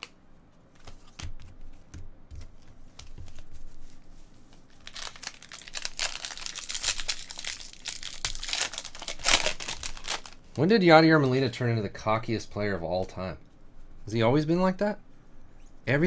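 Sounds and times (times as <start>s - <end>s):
cards tapping and clicking: 0.0s - 3.4s
wrapper crinkling and tearing: 4.6s - 10.6s.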